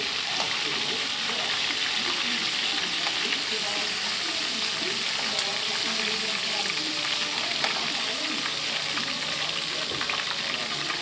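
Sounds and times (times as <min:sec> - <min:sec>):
oil sizzling and crackling in a wok: 0:00.0 - 0:11.0.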